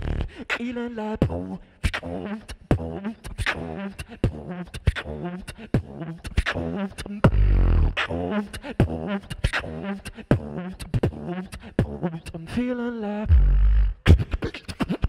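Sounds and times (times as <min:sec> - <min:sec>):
beatboxing: 0:00.0 - 0:12.7, 0:13.3 - 0:15.0
vocal melody: 0:00.0 - 0:15.0
deep bass vocal note: 0:07.3 - 0:08.0, 0:13.3 - 0:14.2.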